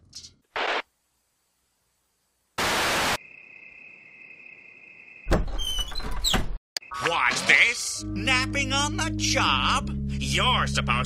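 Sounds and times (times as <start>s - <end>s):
bursts of tv static: 0.5s - 0.9s, 2.6s - 3.2s
crickets chirring: 3.2s - 5.3s.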